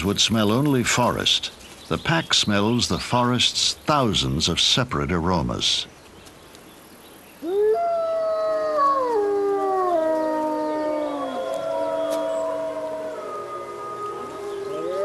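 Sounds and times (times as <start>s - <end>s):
wolves howling in chorus: 7.4s - 15.0s.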